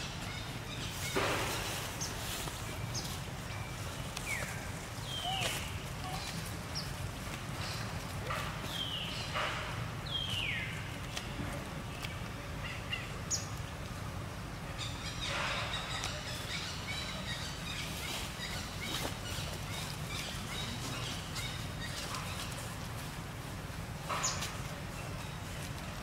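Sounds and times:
high falling bird call: 0.0s - 6.6s
birds chirping: 0.0s - 26.0s
dry leaves crackling: 0.0s - 26.0s.

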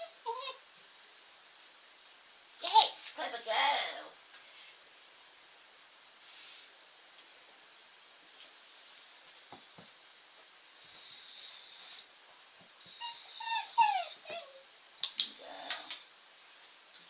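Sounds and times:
puppy whimpering: 0.0s - 0.6s, 2.6s - 3.2s, 10.8s - 12.1s, 12.8s - 16.1s
sharp clicks: 15.0s - 16.0s.

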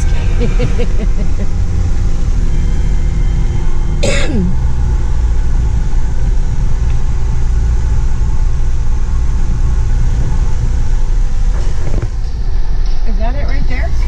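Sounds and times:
low vehicle rumble: 0.0s - 14.0s.

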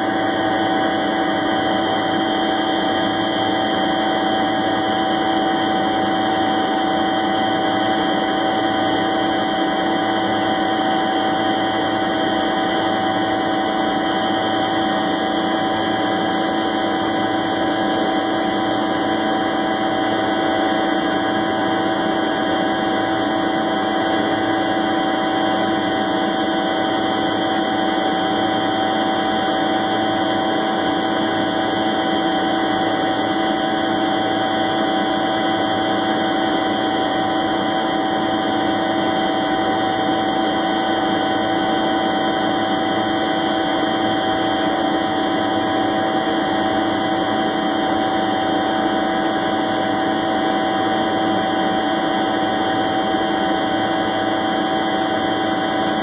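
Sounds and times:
helicopter engine and rotor drone: 0.0s - 56.0s.

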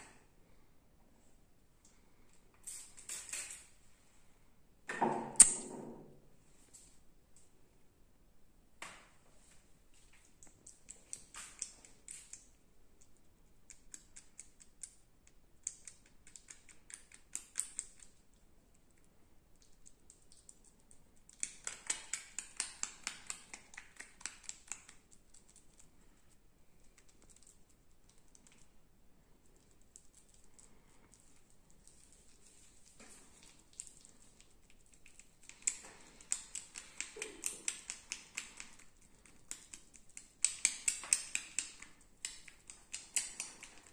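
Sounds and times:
fingertip scraping skin: 2.7s - 3.7s.

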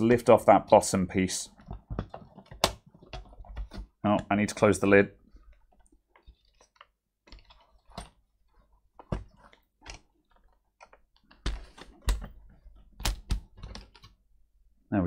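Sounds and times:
laptop plastic clicks and knocks: 1.6s - 3.9s, 9.0s - 14.2s.

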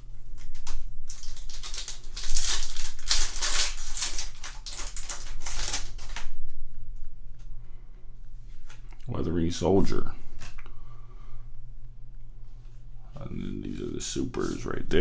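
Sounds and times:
foil wrapper crinkling and tearing: 0.1s - 6.5s.

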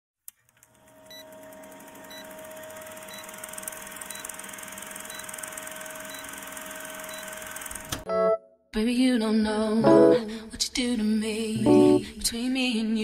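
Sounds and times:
film projector whirring: 0.4s - 8.0s.

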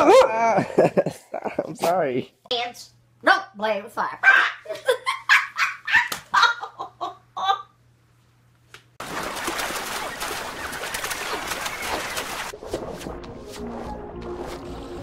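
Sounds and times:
dog yelping: 4.2s - 4.6s, 5.3s - 6.5s
waves splashing: 9.0s - 13.2s.

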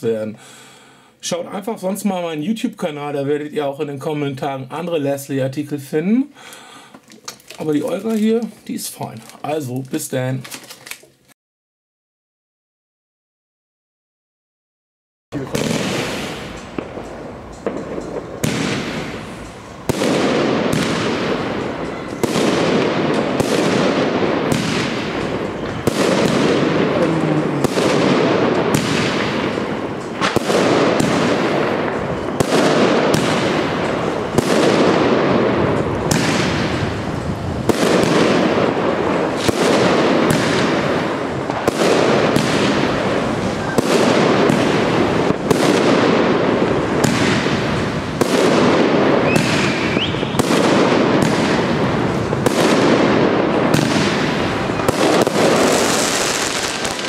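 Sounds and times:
steady hiss: 15.4s - 48.2s
firework battery bangs: 15.4s - 57.0s.

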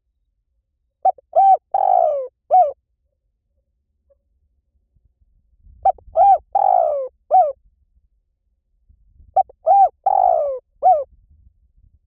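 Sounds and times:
dove cooing: 1.0s - 2.8s, 5.8s - 7.6s, 9.4s - 11.1s.

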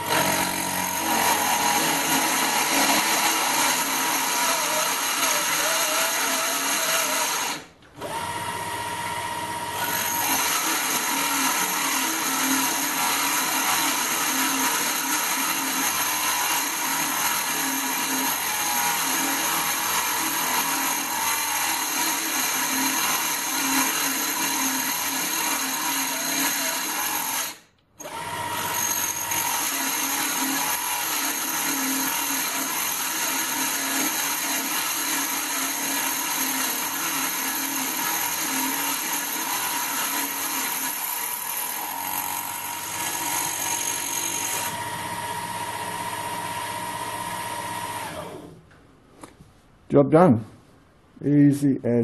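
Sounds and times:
motor spindle drilling metal: 0.0s - 48.4s.

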